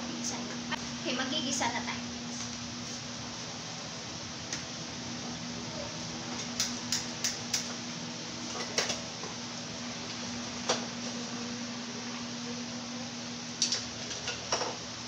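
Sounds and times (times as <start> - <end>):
gas stove igniter clicking: 6.4 - 7.8.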